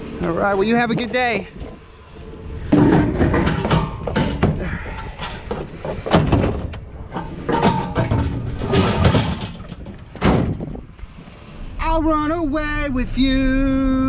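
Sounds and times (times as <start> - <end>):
metal fire pit clanking: 0.2 - 1.9, 2.6 - 11.1.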